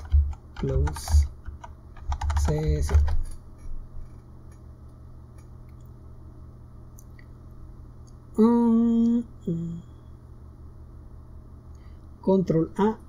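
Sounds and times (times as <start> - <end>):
low background hum: 0.0 - 13.0
person humming mmm: 8.4 - 10.0.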